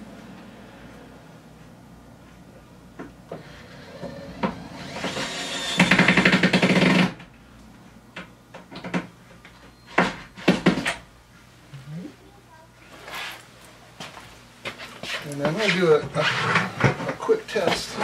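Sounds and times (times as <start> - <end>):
electric screwdriver driving screw: 3.6 - 7.1.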